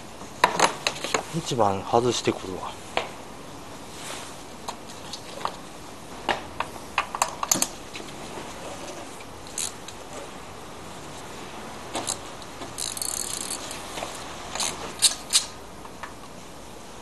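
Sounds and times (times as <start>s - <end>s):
ratchet wrench clicking rapidly: 12.8s - 13.8s.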